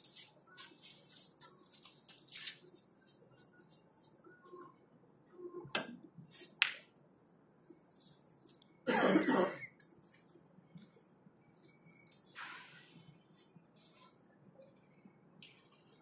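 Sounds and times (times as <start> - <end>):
person coughing: 8.9 - 9.7.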